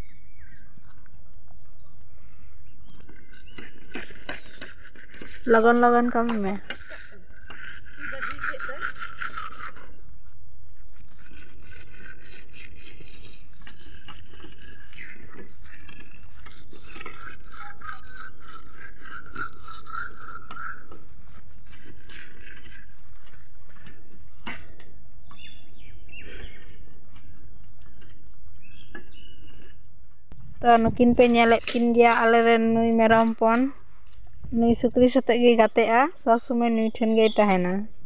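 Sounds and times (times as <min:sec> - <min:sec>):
blade clicking on cane: 0:02.9 - 0:10.0, 0:11.0 - 0:25.5
iron blade scraping bamboo: 0:03.0 - 0:10.1, 0:11.0 - 0:29.9.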